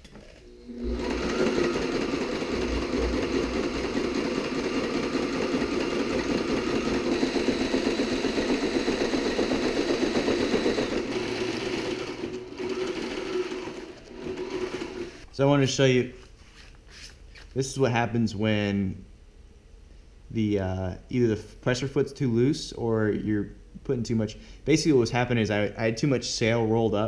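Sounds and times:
sewing machine running: 0.4s - 15.2s.

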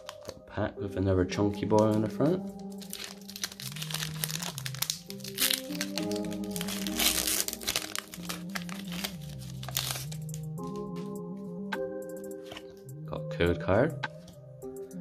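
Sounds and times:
foil wrapper crinkling: 0.0s - 0.4s, 2.5s - 10.9s
background music: 0.0s - 15.0s.

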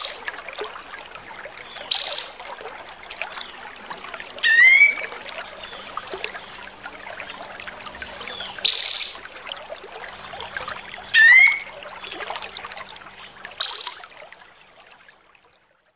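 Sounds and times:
bird singing: 4.4s - 5.9s, 8.2s - 9.3s, 13.6s - 14.2s.

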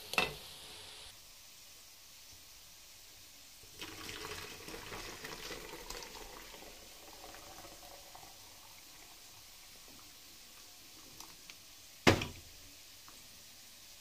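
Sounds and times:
tea pouring through strainer: 3.6s - 11.6s.

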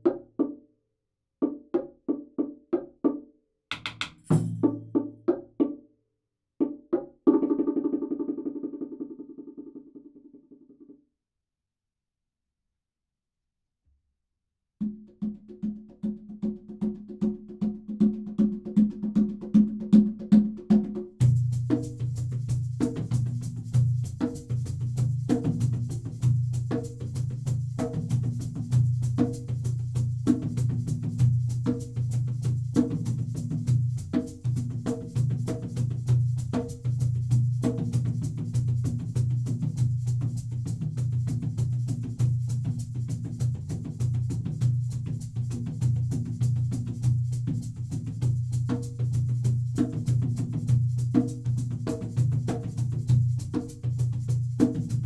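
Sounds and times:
fast repeating percussive hits: 3.7s - 5.2s.

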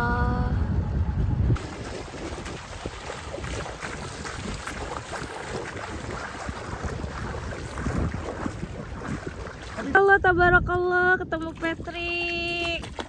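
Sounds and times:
wind on microphone: 0.0s - 13.0s
water sloshing and splashing: 1.6s - 10.2s, 11.3s - 13.0s.

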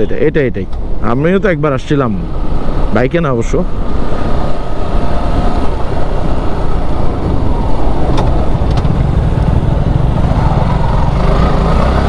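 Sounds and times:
wind rushing over microphone: 0.8s - 12.0s
motorcycle engine running: 5.8s - 12.0s.

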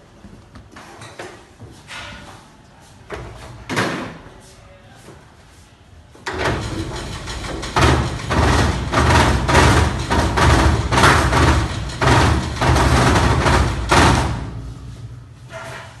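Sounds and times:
belts and rollers clattering: 6.2s - 16.0s
dough sheeter motor humming: 6.3s - 15.4s.

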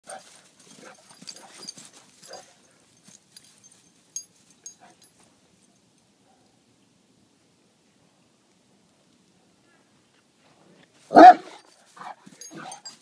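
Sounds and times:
scuffling and clicking: 0.1s - 5.3s.

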